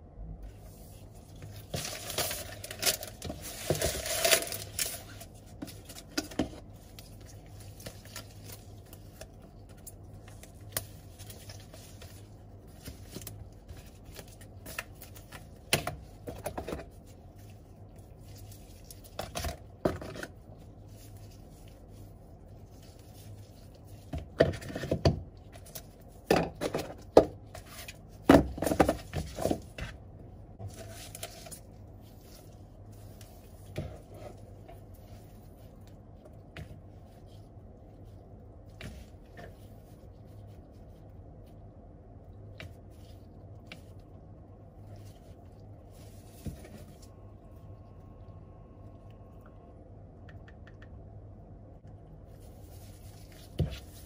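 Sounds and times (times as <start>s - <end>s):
paper and cardboard rustling: 0.6s - 17.5s.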